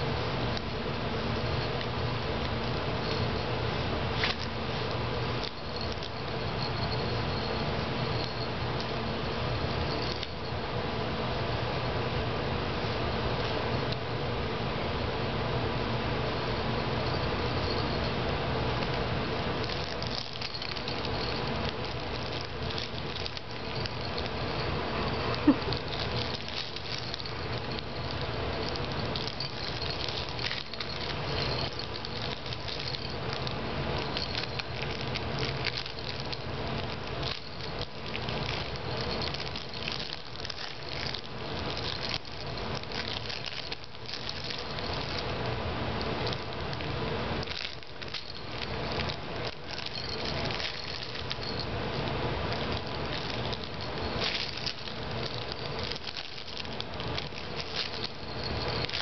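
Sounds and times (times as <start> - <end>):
plush toy rustling and rattling: 0.0 - 10.6, 16.8 - 59.0.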